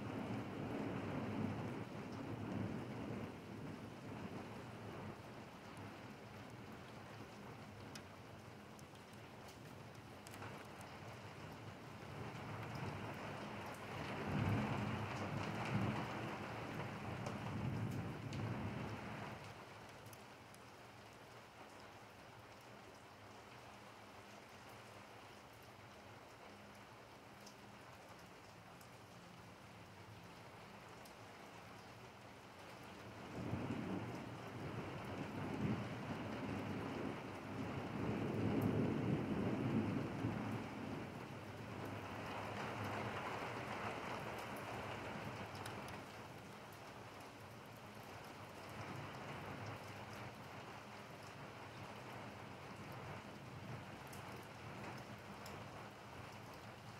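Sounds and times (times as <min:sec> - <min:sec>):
rain on wet pavement: 0:00.0 - 0:56.9
rolling thunder: 0:33.4 - 0:41.2.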